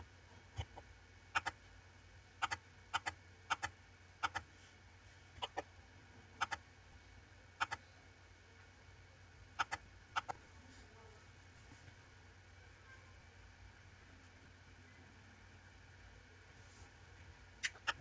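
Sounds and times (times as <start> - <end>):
faint steady hum: 0.0 - 18.0
computer mouse clicks: 2.4 - 4.5.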